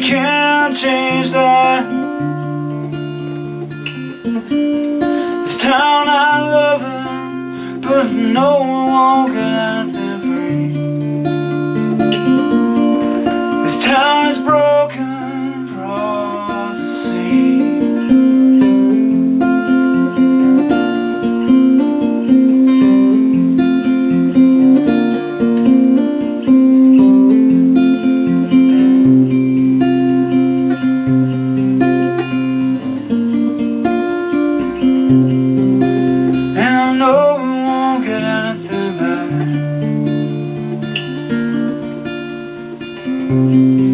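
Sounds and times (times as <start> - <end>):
person's voice: 0.0 - 2.2, 5.4 - 10.9, 36.6 - 39.6
acoustic guitar folk music: 0.0 - 43.9.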